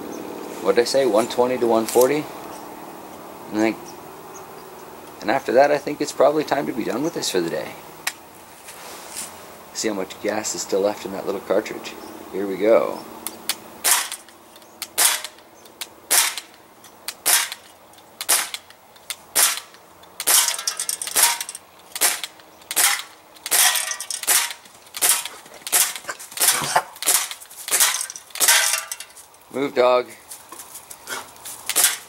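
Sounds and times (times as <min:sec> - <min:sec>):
bb pistol shots popping: 0:13.5 - 0:14.3, 0:14.9 - 0:15.4, 0:16.1 - 0:16.5, 0:17.1 - 0:18.7, 0:19.3 - 0:28.8, 0:31.7 - 0:32.0.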